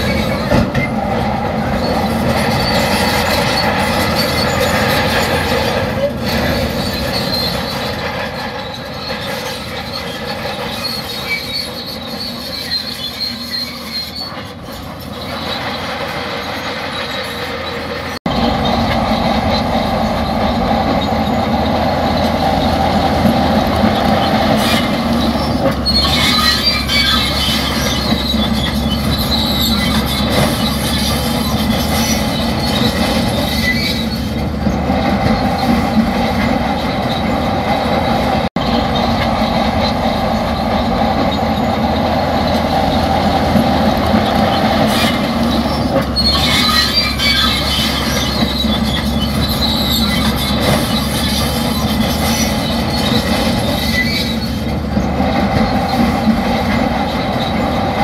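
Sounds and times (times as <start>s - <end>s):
bulldozer engine running: 0.0s - 58.0s
steel tracks squealing and clanking: 0.0s - 58.0s.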